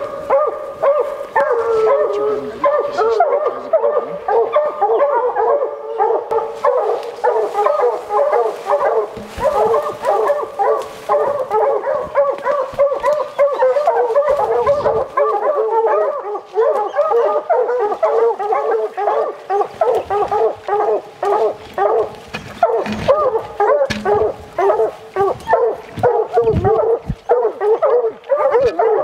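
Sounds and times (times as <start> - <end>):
hounds barking and baying: 0.0 - 29.0
low thumps: 9.1 - 10.4, 25.2 - 27.3.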